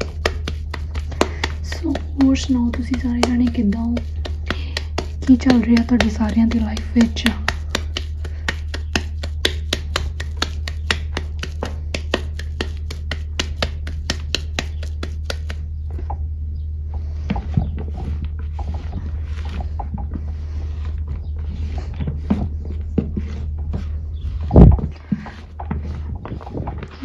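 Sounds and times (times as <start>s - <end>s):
fingers scraping in bowl: 0.0s - 15.6s.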